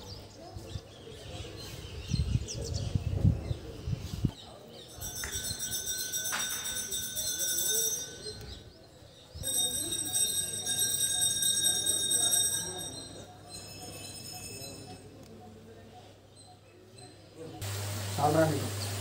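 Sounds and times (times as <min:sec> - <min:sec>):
low wind rumble on microphone: 0:01.9 - 0:04.4
metal temple bell ringing: 0:04.8 - 0:08.7, 0:09.4 - 0:15.1.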